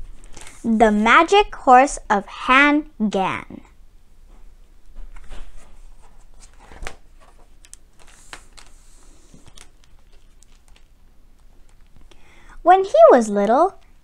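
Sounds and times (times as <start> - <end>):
book page turning: 0.1 - 0.7, 5.0 - 12.1.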